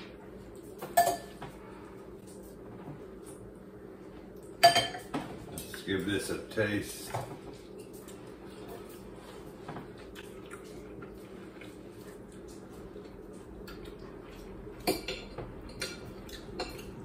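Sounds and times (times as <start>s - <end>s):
low room hum: 0.0s - 17.0s
eating sounds: 7.6s - 14.8s, 15.6s - 17.0s.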